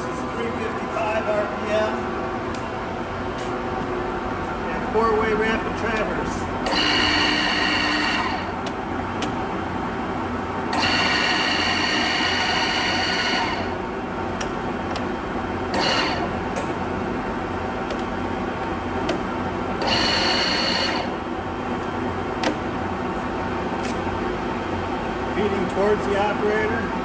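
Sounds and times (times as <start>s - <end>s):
traverse motor whining: 6.6s - 8.6s, 10.7s - 13.8s, 15.7s - 16.4s, 19.8s - 21.2s
lathe gearbox humming: 6.6s - 9.5s, 10.6s - 21.2s.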